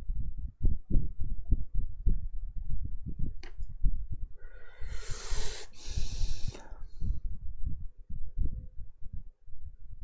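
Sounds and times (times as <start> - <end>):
click: 3.4 - 3.7
man breathing noisily: 4.4 - 7.3.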